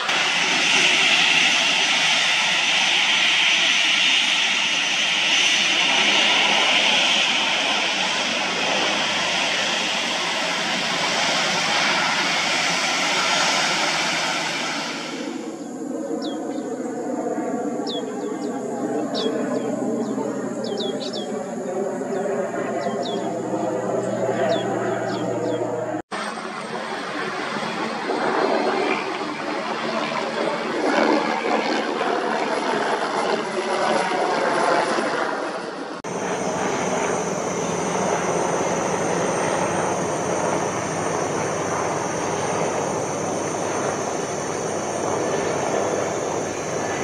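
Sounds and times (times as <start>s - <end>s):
turboprop engines running loudly: 0.0s - 34.1s, 35.8s - 47.0s
aircraft drone overhead: 0.0s - 47.0s
birds chirping: 15.5s - 17.0s, 17.7s - 26.0s, 36.1s - 47.0s.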